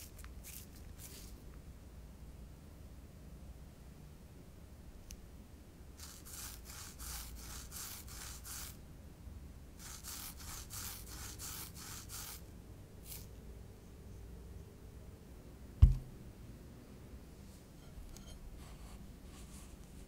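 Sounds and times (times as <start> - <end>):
food rubbing on ceramic plate: 6.0 - 8.8, 9.8 - 12.4.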